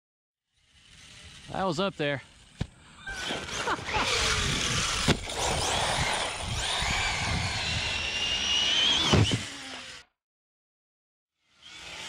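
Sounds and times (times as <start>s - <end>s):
high electric motor whine: 0.6s - 10.1s.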